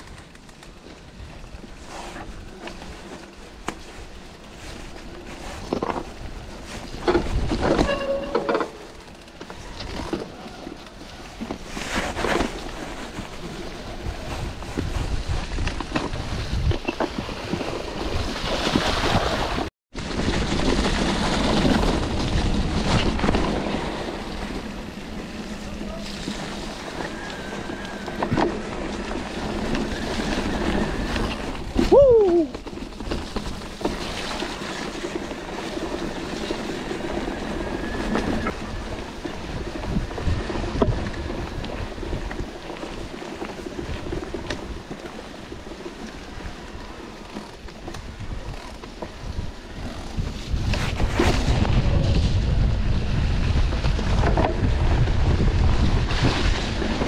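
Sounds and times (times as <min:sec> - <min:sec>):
rumbling tyre noise: 0:00.0 - 0:57.0
short squeal falling in pitch: 0:07.8 - 0:08.8
wind rushing over microphone: 0:11.6 - 0:33.8, 0:35.0 - 0:47.0, 0:47.8 - 0:57.0.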